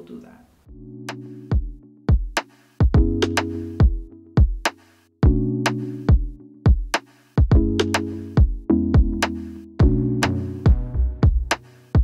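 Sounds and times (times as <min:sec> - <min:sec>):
drum-machine beat: 0:01.1 - 0:12.0
held synth chords: 0:07.6 - 0:11.6.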